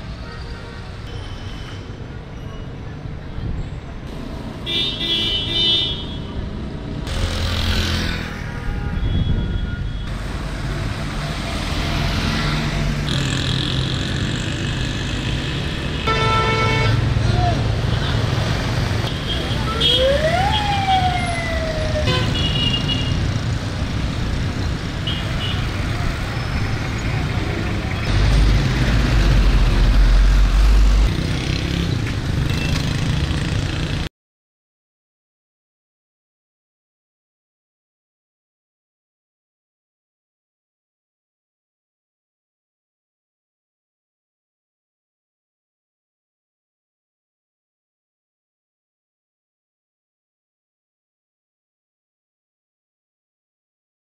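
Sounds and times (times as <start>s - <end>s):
busy street traffic: 0.0s - 34.1s
car horn: 4.6s - 6.3s, 8.4s - 10.1s, 16.0s - 17.0s, 22.1s - 23.2s
vehicle engines passing: 6.2s - 8.7s, 10.0s - 34.1s.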